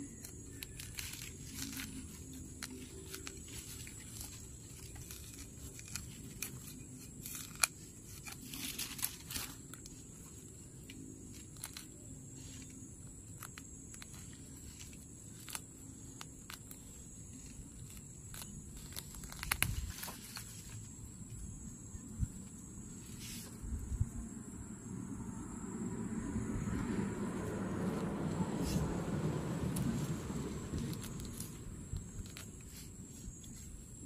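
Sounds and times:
roots and stems snapping: 0.0 - 21.4, 27.9 - 33.8
fingers scraping in dry soil: 0.0 - 21.8, 22.5 - 23.6.

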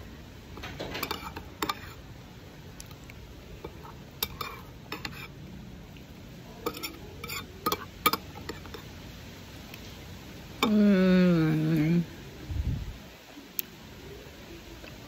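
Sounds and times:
spoon stirring in glass bowl: 0.6 - 2.0, 3.6 - 5.3, 6.6 - 8.9.

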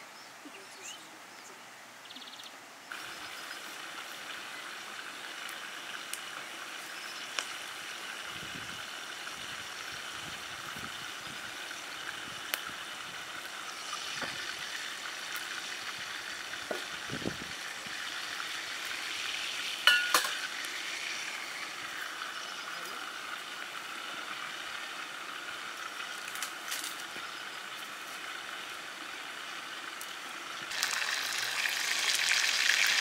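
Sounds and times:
oil sizzling in a frying pan: 2.9 - 33.0
metal pan clanking: 19.9 - 20.5.

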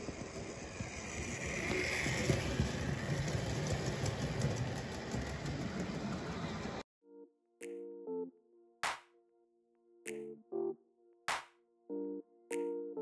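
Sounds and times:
model train wheels rumbling: 0.0 - 6.8.

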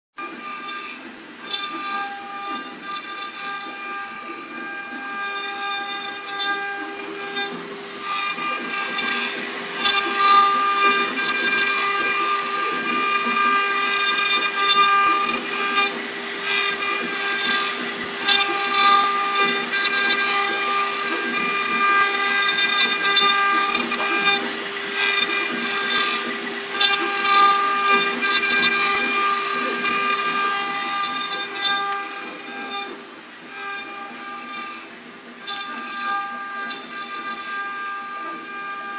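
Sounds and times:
rasping wood cutting: 0.2 - 38.9
router spindle whine: 0.2 - 38.9.

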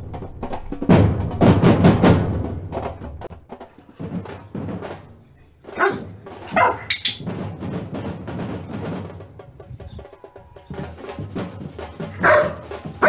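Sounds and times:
background music with percussion: 0.0 - 13.0
dog barking: 5.4 - 7.3, 12.1 - 13.0.

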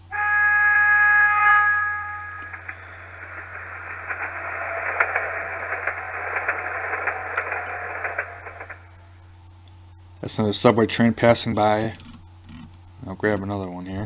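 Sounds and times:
subway train passing: 0.0 - 9.0.

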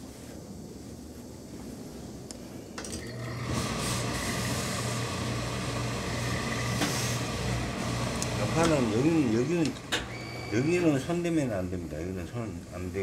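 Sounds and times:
electric hum: 0.0 - 13.0
steam hissing: 3.2 - 11.0.

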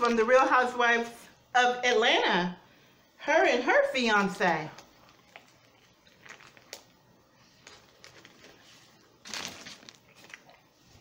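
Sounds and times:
crackle: 4.8 - 10.7
chewing sandwich: 4.8 - 11.0.

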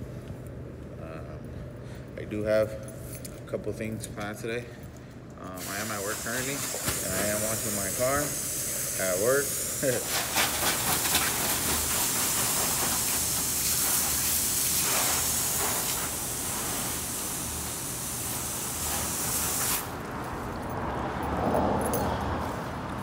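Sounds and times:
hose nozzle spraying water: 5.6 - 19.9.

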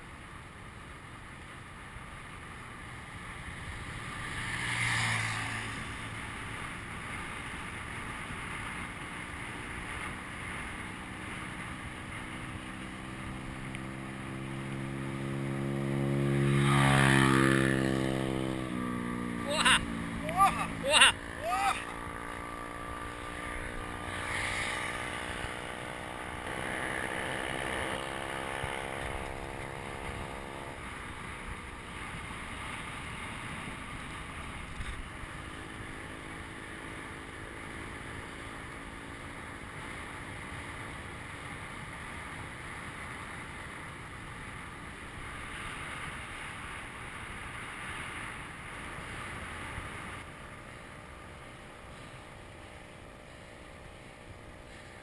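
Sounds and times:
bicycle rolling on asphalt: 0.0 - 20.3, 21.1 - 55.0
steady droning hum: 13.1 - 32.6, 50.1 - 55.0.

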